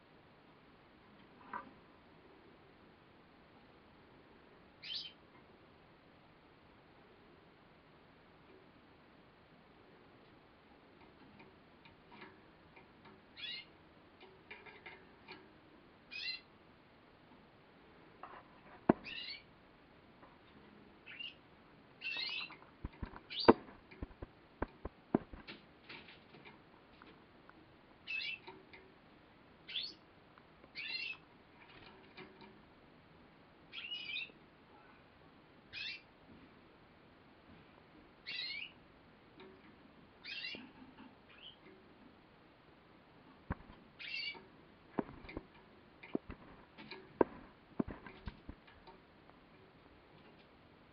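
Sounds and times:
canary chirping: 4.8s - 5.2s, 13.2s - 13.8s, 16.1s - 16.6s, 18.9s - 19.5s, 21.0s - 24.2s, 28.0s - 28.7s, 29.6s - 30.1s, 30.7s - 31.8s, 33.7s - 34.4s, 35.7s - 36.1s, 38.2s - 38.8s, 40.2s - 41.8s, 43.5s - 45.4s.

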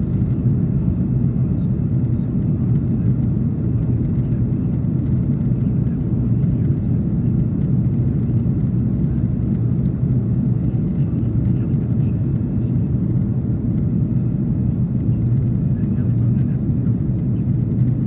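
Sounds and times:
aircraft engines rumbling: 0.0s - 18.0s.

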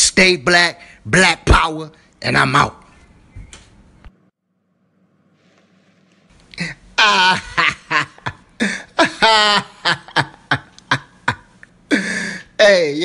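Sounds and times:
man talking: 12.6s - 13.0s.

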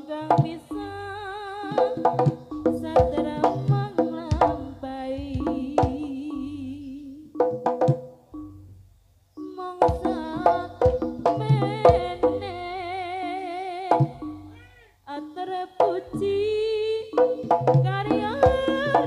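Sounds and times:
person singing: 0.0s - 7.5s, 9.4s - 19.0s
gamelan music: 0.0s - 14.7s, 15.5s - 19.0s
drum strokes: 1.6s - 6.6s, 7.4s - 8.7s, 9.8s - 12.6s, 13.9s - 14.6s, 17.1s - 19.0s.

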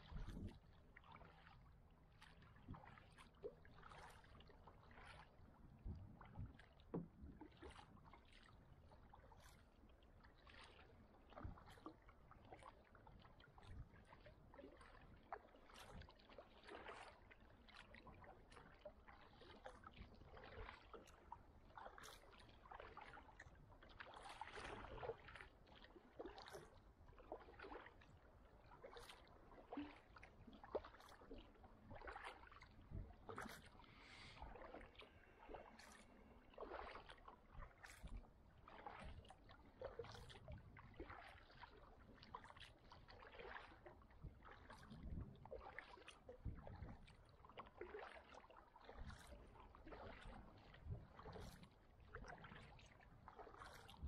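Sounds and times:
water sloshing around hull: 0.0s - 54.0s
paddle splashing into water: 19.1s - 20.9s, 24.0s - 28.0s, 28.8s - 44.8s, 45.5s - 54.0s.

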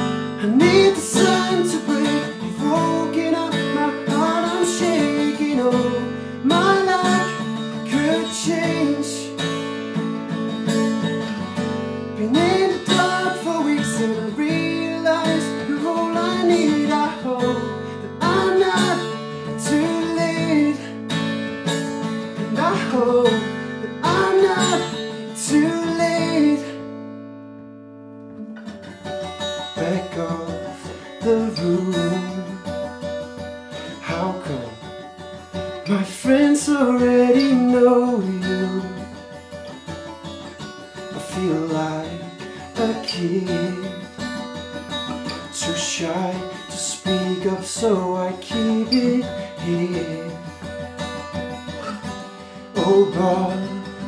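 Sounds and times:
man singing wordless melody: 0.0s - 9.4s, 12.1s - 21.1s, 22.4s - 26.9s, 29.6s - 33.0s, 33.8s - 35.0s, 35.8s - 39.2s, 41.0s - 44.3s, 45.2s - 50.7s, 52.4s - 54.0s
acoustic guitar strumming: 0.0s - 54.0s.

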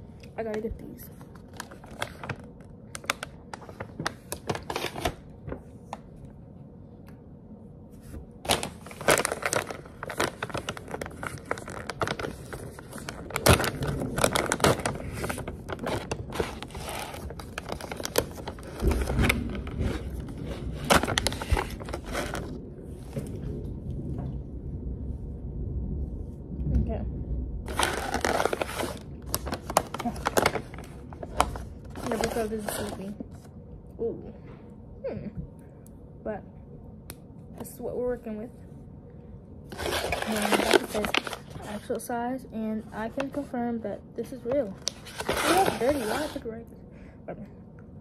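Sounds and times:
snack bag crinkling: 1.2s - 5.4s, 8.5s - 22.6s, 27.7s - 33.4s, 39.7s - 41.9s.

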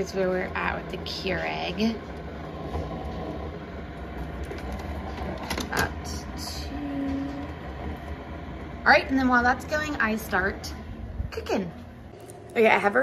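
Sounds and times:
coffee maker humming: 0.0s - 13.0s.

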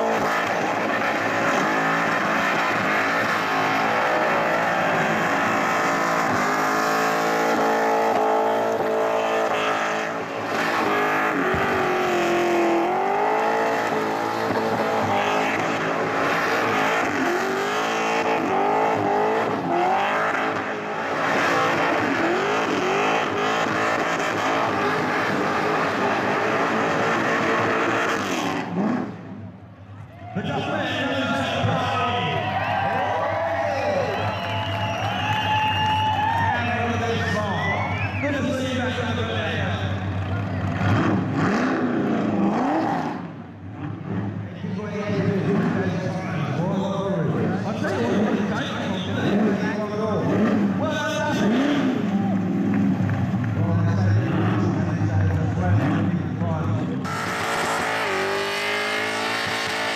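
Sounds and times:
car engine revving: 0.0s - 29.6s, 34.0s - 59.9s
tyres squealing on pavement: 32.2s - 38.9s.

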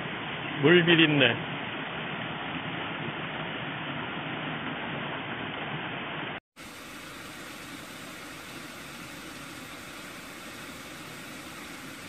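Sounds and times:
waterfall pouring into pond: 0.0s - 12.0s
steady hiss: 6.3s - 12.0s.

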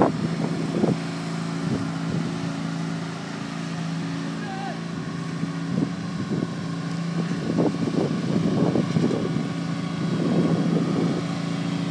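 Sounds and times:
wind noise on microphone: 0.0s - 2.4s, 5.0s - 11.9s
lawn tractor engine running: 0.0s - 11.9s.

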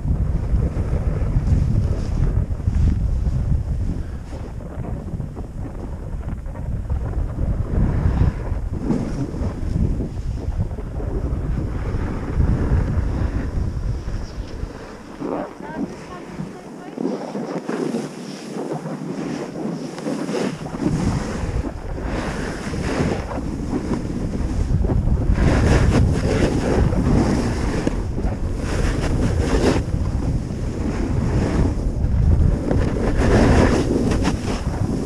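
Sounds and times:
wind buffeting microphone: 0.0s - 35.0s
ski edges scraping snow: 7.9s - 10.5s, 11.8s - 24.7s, 25.3s - 31.9s, 32.5s - 35.0s.

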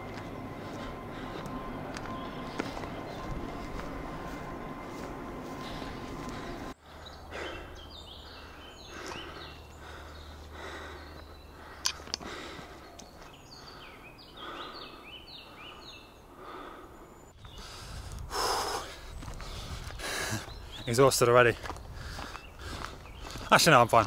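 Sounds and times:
birds singing: 0.0s - 24.0s
person breathing hard: 0.1s - 3.9s, 5.0s - 20.7s, 21.8s - 23.4s.

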